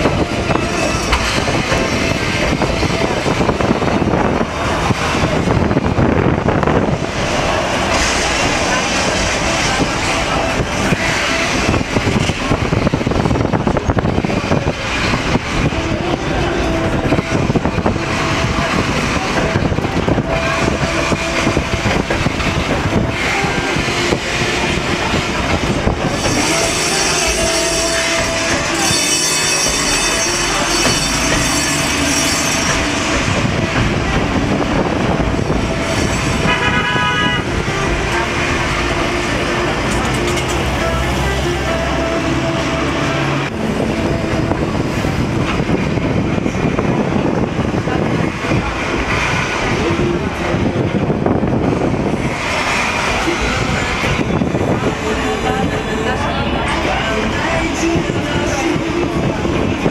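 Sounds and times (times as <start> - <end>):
street traffic passing: 0.0 - 59.9
tram running rumble: 0.0 - 59.9
vehicle horn tooting: 36.4 - 37.6.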